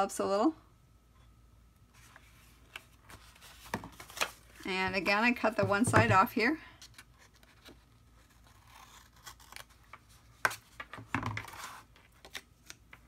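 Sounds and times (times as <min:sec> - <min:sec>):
paper rustling: 0:02.0 - 0:05.0.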